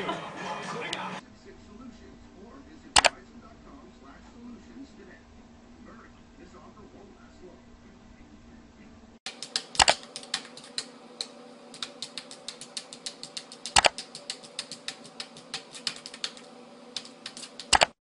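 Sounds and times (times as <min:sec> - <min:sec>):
rapid uneven clicking: 0:09.3 - 0:18.0.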